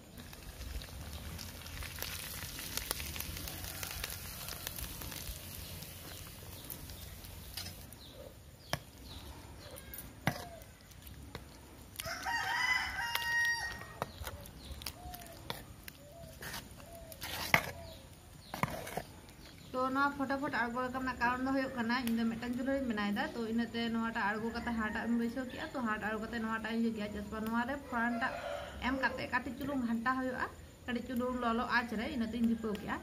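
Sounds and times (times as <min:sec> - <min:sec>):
rooster crowing: 0:03.4 - 0:05.0, 0:12.0 - 0:14.1, 0:27.8 - 0:29.2
ladle scraping a metal pot: 0:16.4 - 0:17.8, 0:18.5 - 0:19.1.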